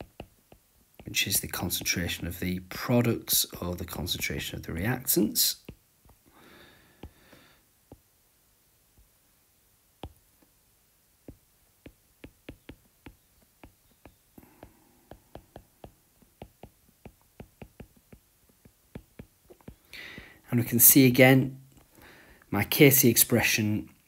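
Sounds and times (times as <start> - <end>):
stylus tapping on glass screen: 0.0 - 1.2, 11.3 - 20.3.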